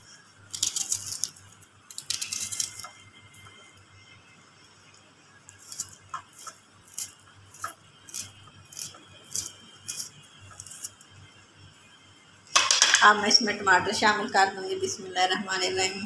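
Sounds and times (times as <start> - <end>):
knife cutting onions: 0.5 - 2.9, 5.6 - 11.0.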